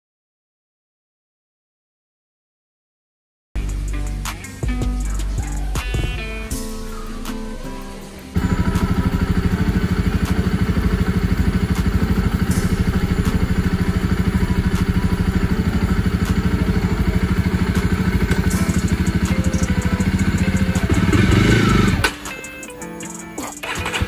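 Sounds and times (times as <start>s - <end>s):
motorcycle engine idling: 8.3s - 22.4s, 23.6s - 24.0s.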